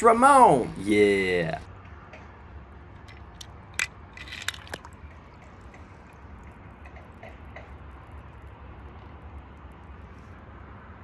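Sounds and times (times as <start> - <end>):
toy cars clicking and tapping: 3.0 - 9.7.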